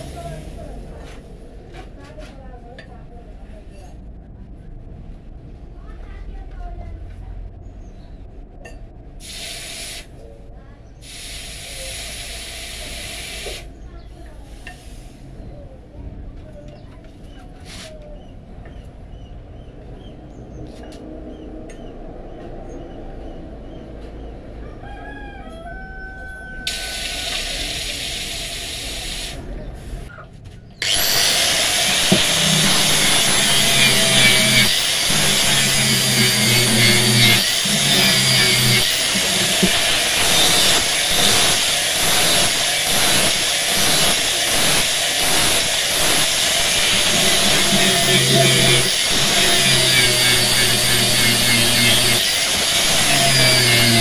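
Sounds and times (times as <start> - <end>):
hiss: 9.2 - 10.1, 11.0 - 13.7, 14.5 - 15.3, 26.7 - 29.4
angle grinder grinding steel: 30.8 - 54.0.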